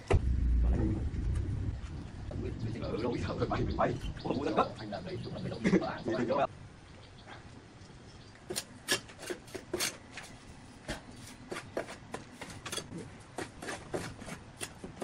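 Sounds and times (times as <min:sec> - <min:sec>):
trowel scraping wet mortar: 0:08.5 - 0:15.0.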